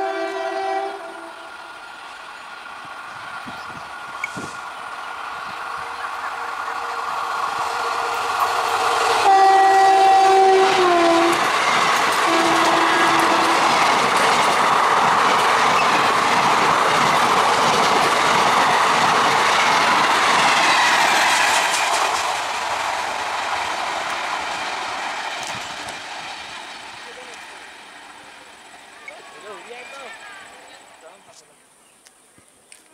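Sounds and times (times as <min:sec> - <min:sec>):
train horn: 0:00.0 - 0:01.6, 0:06.7 - 0:11.5, 0:12.1 - 0:14.0
electric train passing: 0:00.0 - 0:31.4
wheels on rails: 0:01.5 - 0:31.5.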